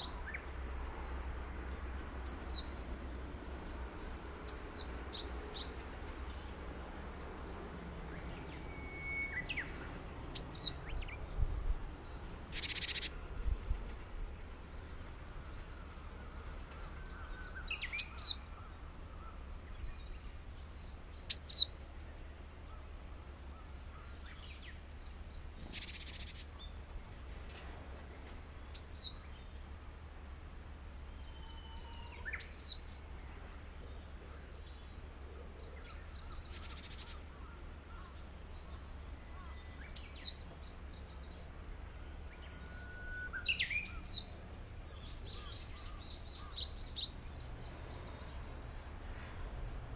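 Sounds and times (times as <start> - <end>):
faint steady high hiss: 0.0 - 49.9
bird giving short high calls: 12.5 - 13.3.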